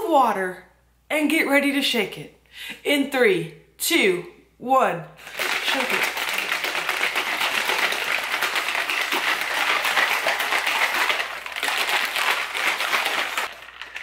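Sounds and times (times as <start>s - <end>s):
shaker bottle whisk ball rattling: 5.2s - 14.0s.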